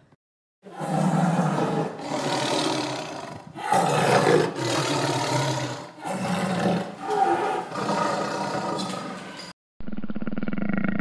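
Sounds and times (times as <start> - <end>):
tiger roaring: 0.7 - 9.2.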